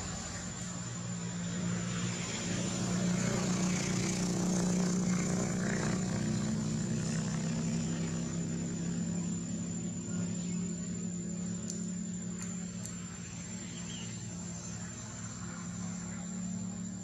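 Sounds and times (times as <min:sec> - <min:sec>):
low engine drone: 0:00.0 - 0:17.0.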